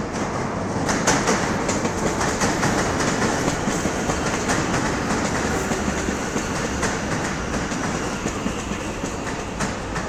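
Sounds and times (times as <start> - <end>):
electric train rolling: 0.0 - 10.0.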